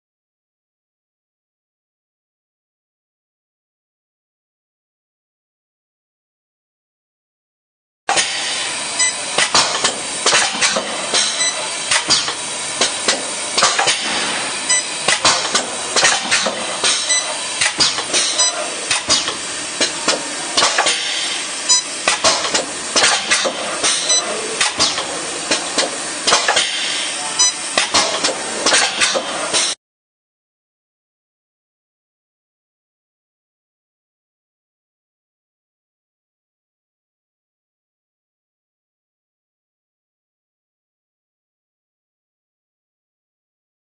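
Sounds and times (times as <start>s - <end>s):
machine clamps clicking and knocking: 8.1s - 29.8s.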